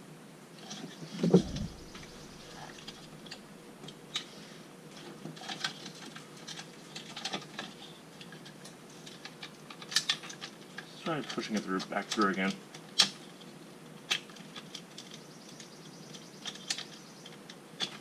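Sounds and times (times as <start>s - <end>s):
plastic clicks and rattles: 5.3s - 10.9s.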